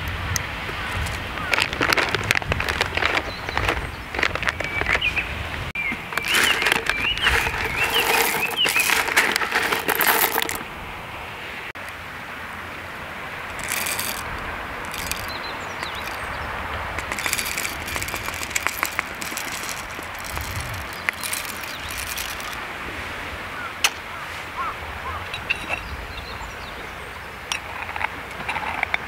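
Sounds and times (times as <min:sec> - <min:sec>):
grinder clicks and scrapes: 0:00.8 - 0:05.2, 0:05.8 - 0:10.7, 0:13.5 - 0:16.4, 0:17.0 - 0:22.6, 0:27.5 - 0:29.0
coffee beans rattling in foil bag: 0:00.9 - 0:05.1, 0:06.0 - 0:10.6, 0:13.5 - 0:16.4, 0:17.0 - 0:22.6.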